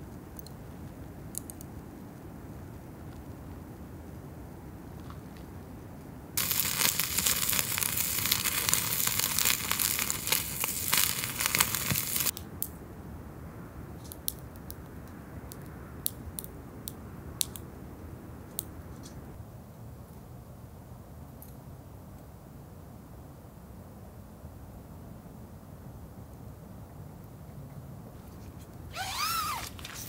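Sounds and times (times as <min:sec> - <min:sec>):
plastic packaging crinkling: 0:06.4 - 0:12.3.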